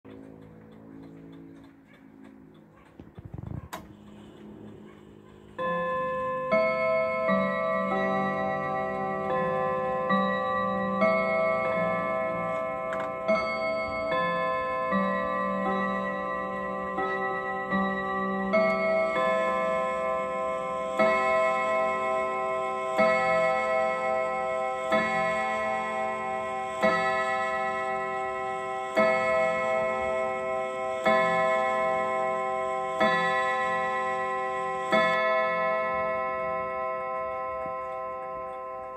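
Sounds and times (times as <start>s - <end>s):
clock ticking: 0.1s - 3.3s
clock chime melody: 4.4s - 38.9s.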